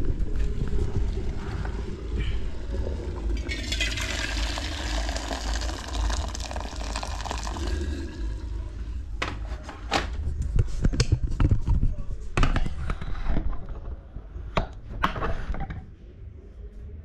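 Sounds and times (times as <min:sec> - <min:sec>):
water pouring from metal pot: 0:02.2 - 0:08.8.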